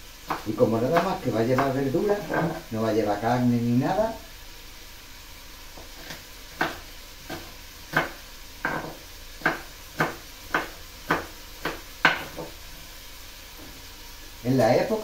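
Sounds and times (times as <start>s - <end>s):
knife chopping on wooden board: 0.2s - 2.6s, 5.8s - 12.6s.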